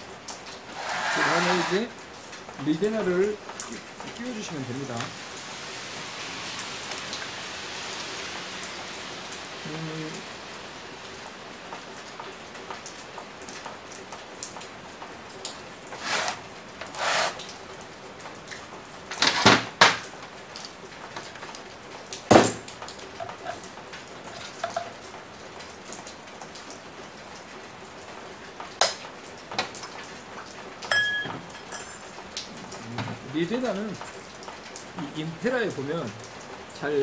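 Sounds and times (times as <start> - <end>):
steady hiss: 0.6 - 2.0.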